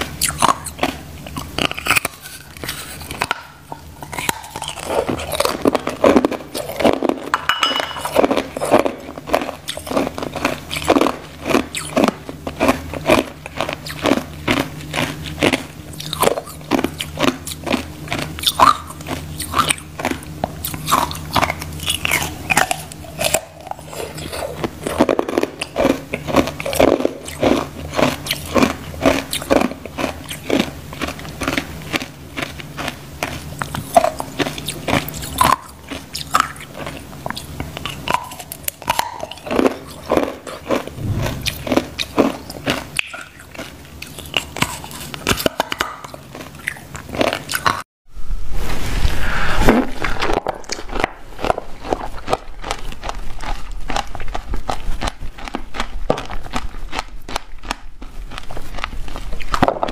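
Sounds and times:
ice crunching while chewed: 0.0 - 7.3, 8.0 - 47.9, 49.9 - 59.9
low steady hum: 0.0 - 59.9.

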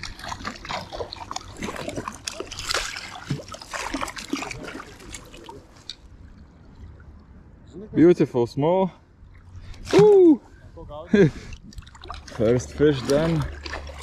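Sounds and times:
fish splashing at water surface: 0.0 - 6.0, 11.5 - 14.0.

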